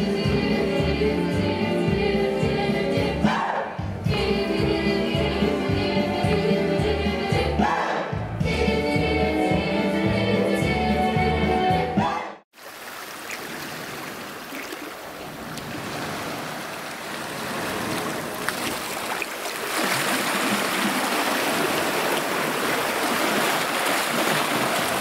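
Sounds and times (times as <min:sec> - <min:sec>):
sea water washing: 0:12.6 - 0:25.0.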